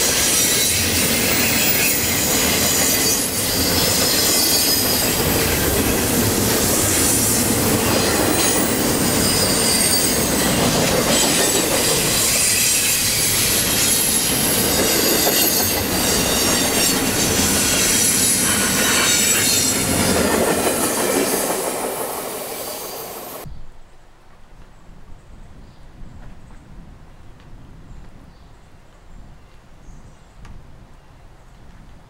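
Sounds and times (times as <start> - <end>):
metallic wheel squeal: 0.0 - 5.4, 9.0 - 11.4, 12.0 - 20.0
freight train wheels rumbling: 0.0 - 23.5.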